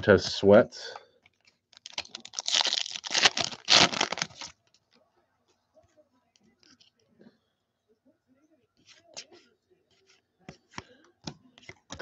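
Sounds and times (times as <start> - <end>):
foil wrapper tearing and crinkling: 1.7 - 4.6.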